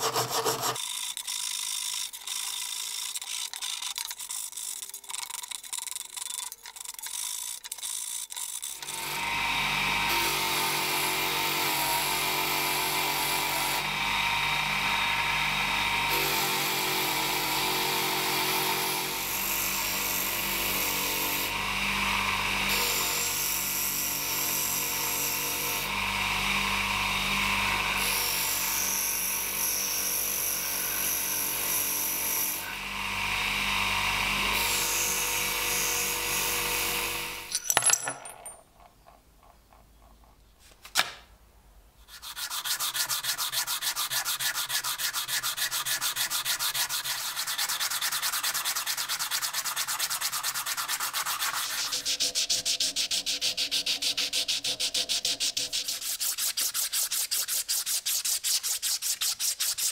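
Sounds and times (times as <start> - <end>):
bench grinder motor hum: 8.6 - 37.5.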